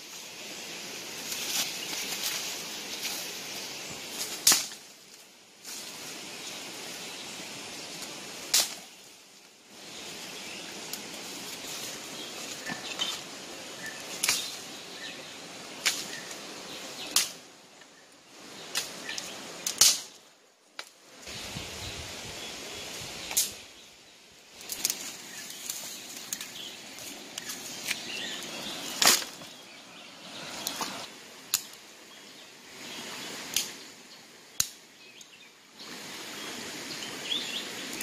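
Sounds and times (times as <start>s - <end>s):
steady hiss: 0.0s - 38.0s
footsteps through dry leaves: 1.2s - 4.4s
twigs cracking: 4.1s - 5.9s, 24.6s - 29.6s.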